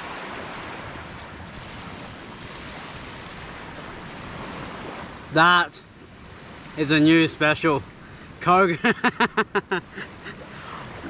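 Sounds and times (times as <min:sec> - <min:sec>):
wind on microphone: 0:00.0 - 0:05.3
small waves washing on shore: 0:00.0 - 0:11.0.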